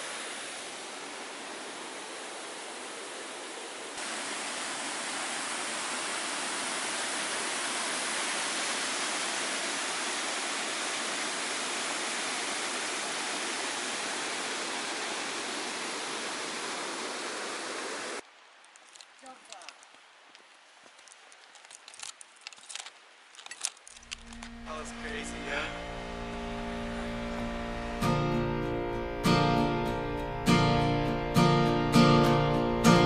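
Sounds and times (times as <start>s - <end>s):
water rushing over rocks: 0.0s - 25.9s.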